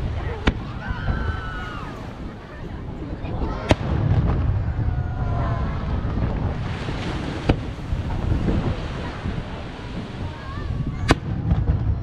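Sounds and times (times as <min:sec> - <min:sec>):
surf: 0:00.0 - 0:12.0
wind on microphone: 0:00.0 - 0:12.0
firework bang: 0:03.5 - 0:12.0.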